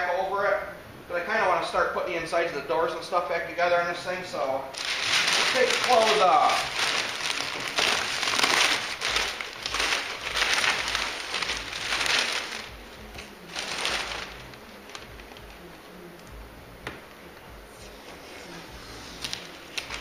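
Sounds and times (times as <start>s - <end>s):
coverings crinkling: 4.7s - 16.3s, 19.2s - 20.0s.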